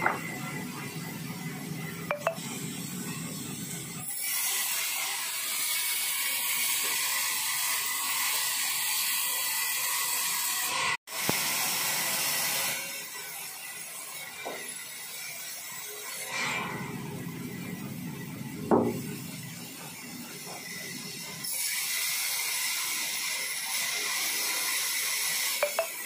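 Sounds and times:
sharp knocks: 18.7s - 19.1s.

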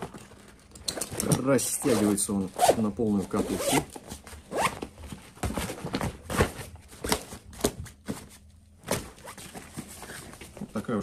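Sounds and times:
backpack straps knocking and rustling: 3.6s - 10.8s.

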